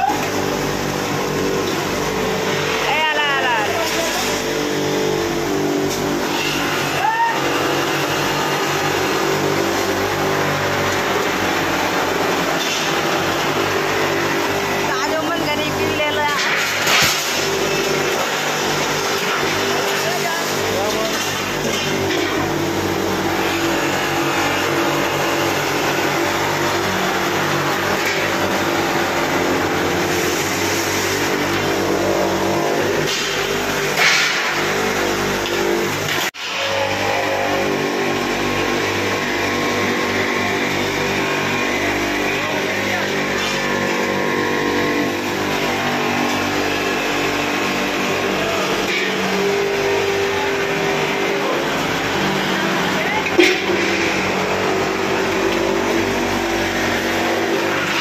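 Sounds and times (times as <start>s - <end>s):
buffing machine motor hum: 0.0s - 58.0s
polishing wheel rushing on metal: 0.3s - 16.0s.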